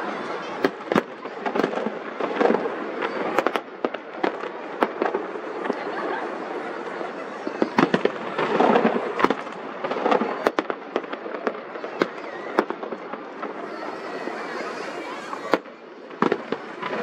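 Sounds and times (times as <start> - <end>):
fireworks crackling: 0.0 - 17.0
firework shells banging: 0.6 - 5.9, 6.8 - 14.0.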